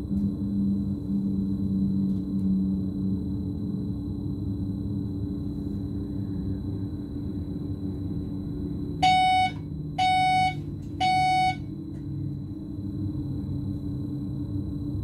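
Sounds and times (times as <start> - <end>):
warning beeps: 9.0 - 11.6.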